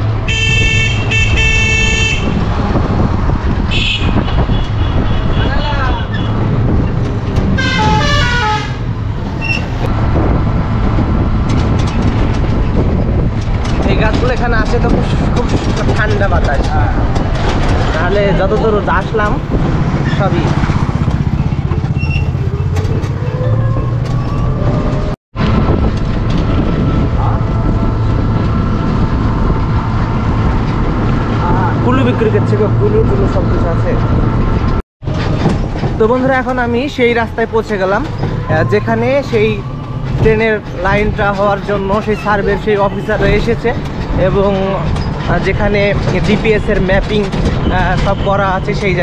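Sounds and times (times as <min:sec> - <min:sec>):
wind on microphone: 0:00.0 - 0:36.4
vehicle rumble: 0:00.0 - 0:49.0
musical horn tune: 0:07.6 - 0:08.9.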